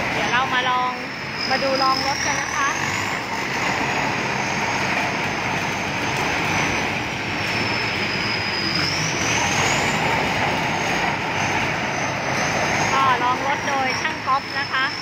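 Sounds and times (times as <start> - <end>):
diesel engine running under load: 0.0 - 15.0
thin high whine: 0.0 - 15.0.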